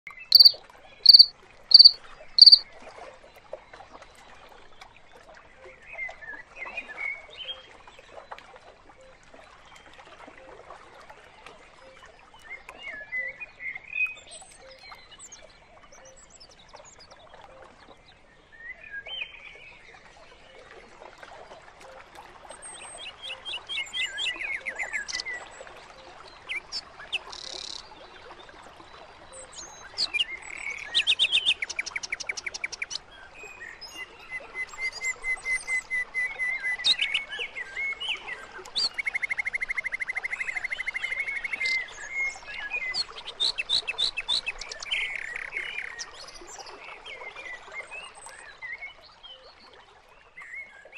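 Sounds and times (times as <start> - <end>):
birds chirping and trilling: 0.3 - 2.6.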